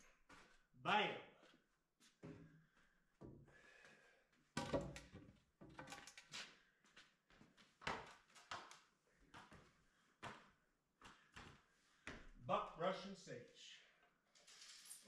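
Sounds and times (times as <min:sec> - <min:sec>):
wooden knocks and thuds: 0:04.6 - 0:05.8.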